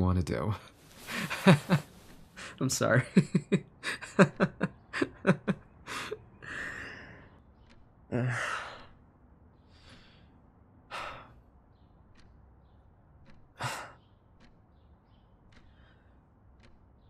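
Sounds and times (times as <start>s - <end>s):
man breathing shakily: 5.8s - 7.4s
man sighing: 8.1s - 8.9s.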